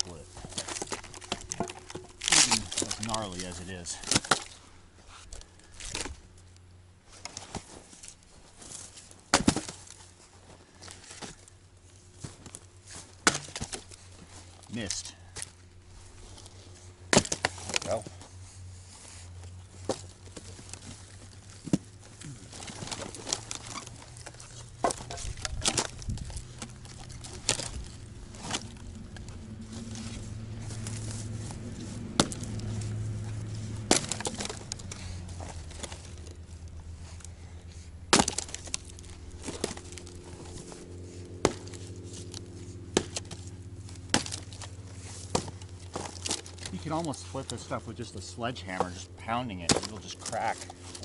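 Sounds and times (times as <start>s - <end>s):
low steady hum: 0.0s - 51.0s
axe chopping wood: 3.9s - 4.6s, 9.3s - 10.0s, 13.2s - 14.0s, 17.1s - 17.9s, 22.5s - 29.0s, 32.0s - 32.8s, 33.6s - 36.0s, 38.1s - 40.7s, 41.3s - 46.8s, 49.6s - 51.0s.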